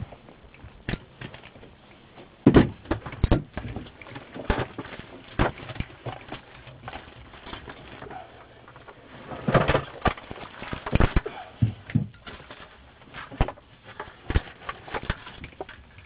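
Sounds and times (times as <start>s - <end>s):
knocks and thumps: 2.4s - 7.1s, 8.7s - 15.8s.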